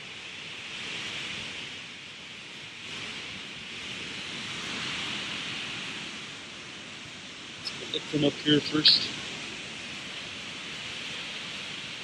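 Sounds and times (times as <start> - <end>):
waterfall rushing: 2.7 - 12.0.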